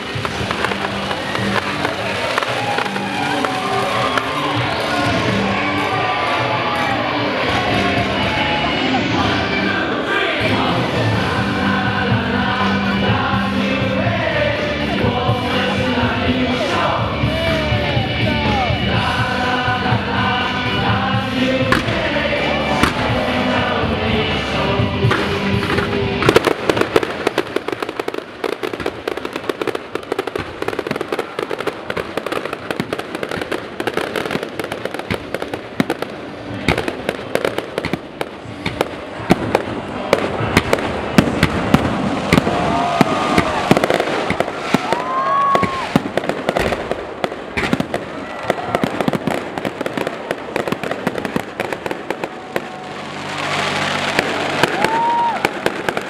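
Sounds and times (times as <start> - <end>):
firework whistles: 0.0 - 4.8, 40.5 - 49.7, 50.8 - 56.0
firework bursts and crackling bangs: 0.0 - 56.0.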